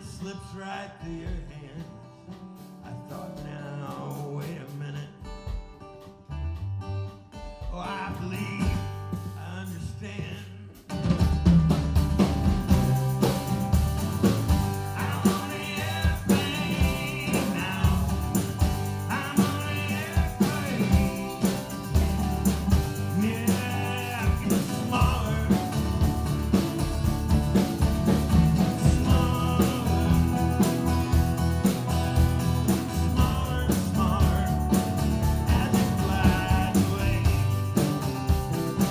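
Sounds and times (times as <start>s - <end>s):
strummed acoustic guitar: 0.0s - 38.9s
lap steel guitar: 11.4s - 38.9s
hand percussion: 12.0s - 38.9s.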